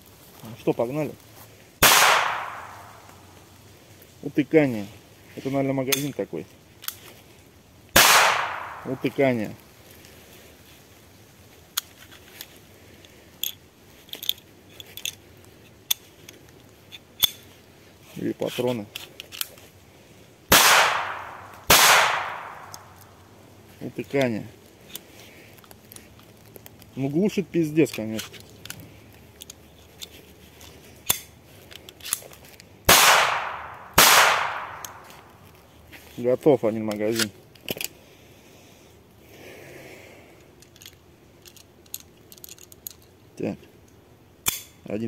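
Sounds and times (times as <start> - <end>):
pistol sharp metallic clicks: 1.8 - 3.2, 8.0 - 9.2, 15.8 - 17.5, 20.5 - 23.1, 31.0 - 32.2, 32.9 - 35.4, 44.4 - 44.8
person speaking: 8.4 - 9.6, 26.8 - 28.4.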